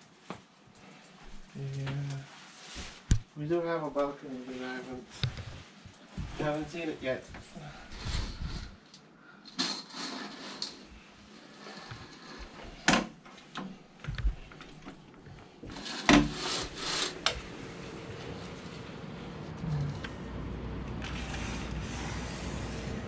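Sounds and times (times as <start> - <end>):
low city hum: 14.2 - 23.0
glass door sliding open: 15.6 - 23.0.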